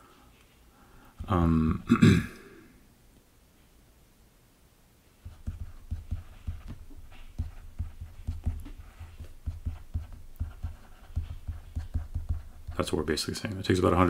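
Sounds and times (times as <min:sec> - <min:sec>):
stylus tapping on tablet: 0:05.2 - 0:13.1.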